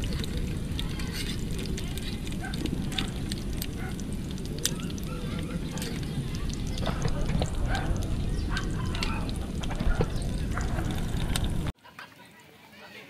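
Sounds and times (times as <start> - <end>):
gas stove low rumble: 0.0 - 11.7
hot dogs sizzling in a pan: 0.0 - 11.8.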